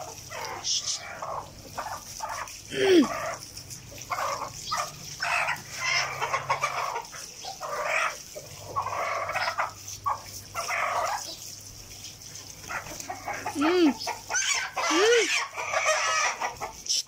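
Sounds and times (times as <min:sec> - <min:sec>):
hen clucking and squawking: 0:00.0 - 0:17.0
running water hissing: 0:00.0 - 0:17.0.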